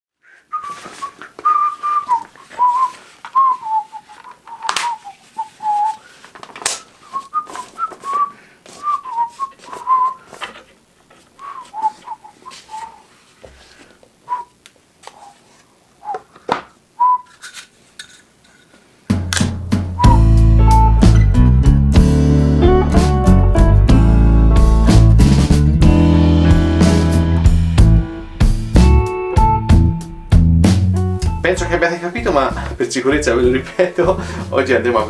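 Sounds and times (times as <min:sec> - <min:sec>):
person whistling a tune: 0:00.5 - 0:06.0, 0:07.0 - 0:10.3, 0:11.4 - 0:13.0, 0:17.0 - 0:17.3, 0:20.0 - 0:21.3.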